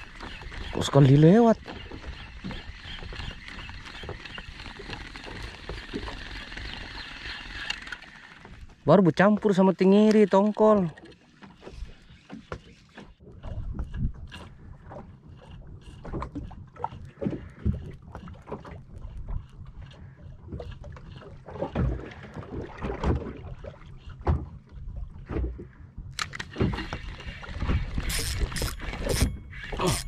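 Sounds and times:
water slapping against boat hull: 7.8s - 19.5s, 20.4s - 25.8s.

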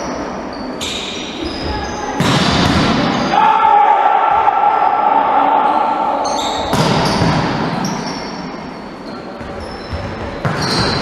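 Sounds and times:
shoes squeaking on court floor: 0.0s - 2.2s, 6.2s - 11.0s
volleyball being hit: 6.7s - 7.6s.

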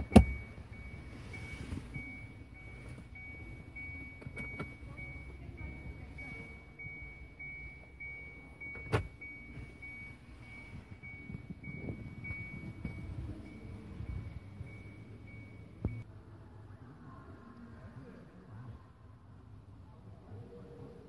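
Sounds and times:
car warning chime beeping: 0.0s - 16.1s.

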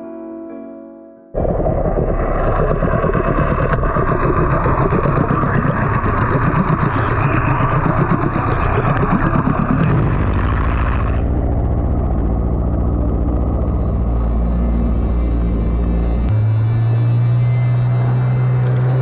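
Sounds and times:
water rushing: 1.4s - 13.0s
outboard motor underwater: 1.4s - 19.0s.

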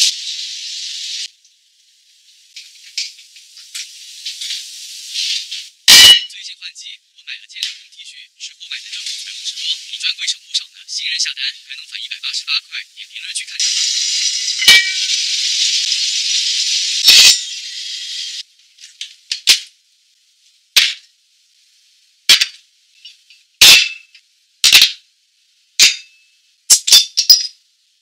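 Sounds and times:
food sizzling in a pot: 0.0s - 6.2s, 8.9s - 10.0s, 13.6s - 26.9s.

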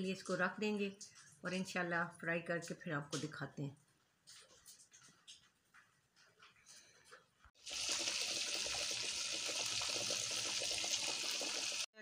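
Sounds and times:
fish sizzling in hot oil: 7.6s - 11.9s.

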